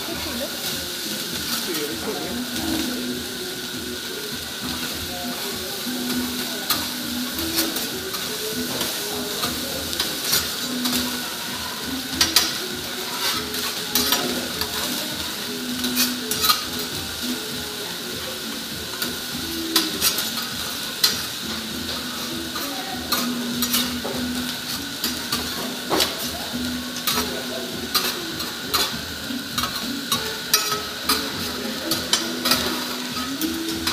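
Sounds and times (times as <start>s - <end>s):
rice sizzling on griddle: 0.0s - 33.9s
metal spatulas scraping and tapping: 13.2s - 14.8s, 15.8s - 16.8s, 19.8s - 21.2s, 23.1s - 24.2s, 29.6s - 33.9s.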